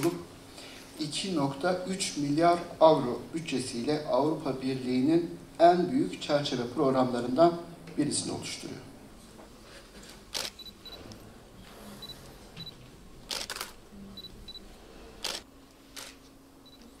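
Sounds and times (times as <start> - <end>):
camera shutter clicks: 10.3 - 10.6, 13.3 - 13.8, 15.2 - 15.4
short high camera beeps: 10.3 - 11.0, 12.0 - 14.6, 16.0 - 16.9.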